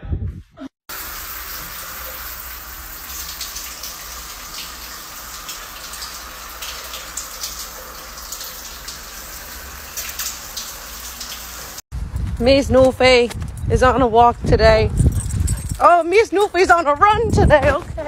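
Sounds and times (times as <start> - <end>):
shower water spraying: 0.9 - 11.8.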